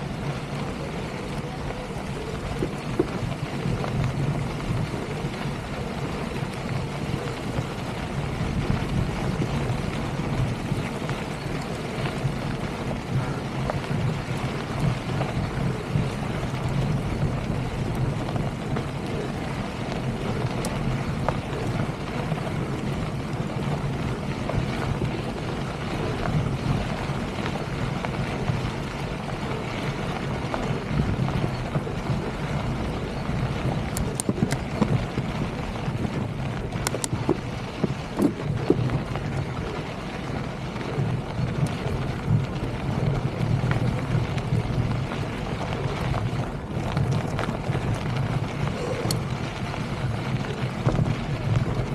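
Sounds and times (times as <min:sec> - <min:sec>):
bike rolling over gravel: 0:00.0 - 0:51.9
wind buffeting microphone: 0:00.0 - 0:51.9
sharp clicks and rattles: 0:32.7 - 0:39.7.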